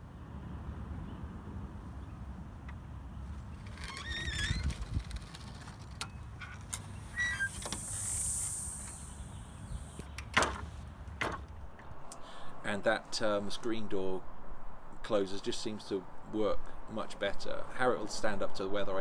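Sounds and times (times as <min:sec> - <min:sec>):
wooden gate squeaking: 0:03.5 - 0:08.0
door closer hiss of air: 0:07.1 - 0:10.7.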